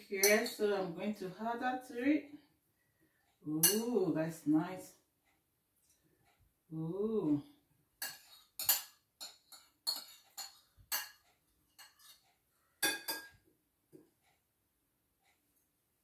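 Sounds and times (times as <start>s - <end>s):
cutlery clinking on ceramic: 8.0s - 12.2s, 12.8s - 13.4s.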